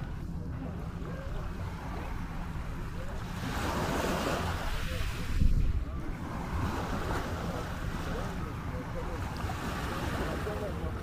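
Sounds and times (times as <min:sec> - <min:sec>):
faint voices: 0:00.0 - 0:11.0
small waves washing onto shore: 0:00.0 - 0:11.0
wind buffeting microphone: 0:01.0 - 0:09.1.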